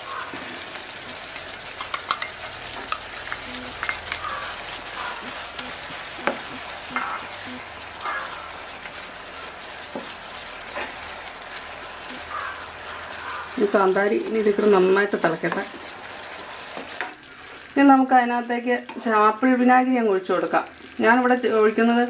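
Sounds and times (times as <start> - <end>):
gravy sizzling and bubbling: 0.0 - 22.0
spoon knocking against pan: 1.8 - 7.2.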